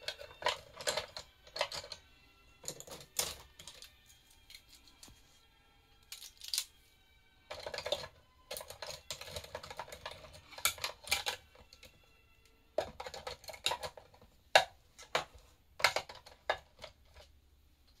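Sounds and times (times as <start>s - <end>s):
pens clattering in pen holder: 0.0s - 2.0s, 2.6s - 5.1s, 7.5s - 12.0s, 12.7s - 17.3s.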